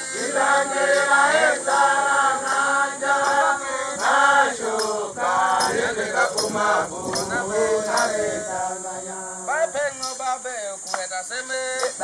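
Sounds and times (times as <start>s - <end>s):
group of voices chanting: 0.0s - 9.5s.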